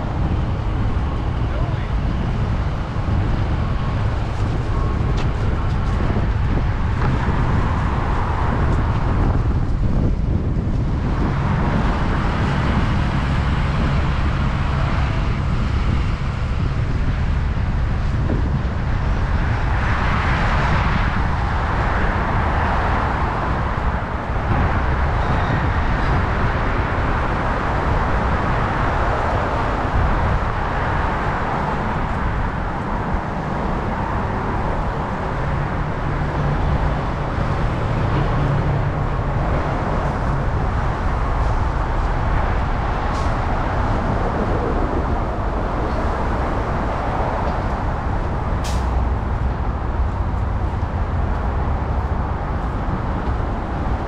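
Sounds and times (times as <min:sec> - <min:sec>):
low traffic rumble: 0:00.0 - 0:54.0
hiss of passing vehicles: 0:17.8 - 0:54.0.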